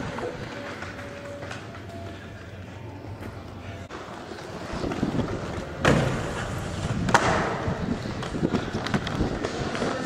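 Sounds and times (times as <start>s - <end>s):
skate wheels rolling on concrete: 0.0s - 10.0s
wind on microphone: 6.4s - 10.0s.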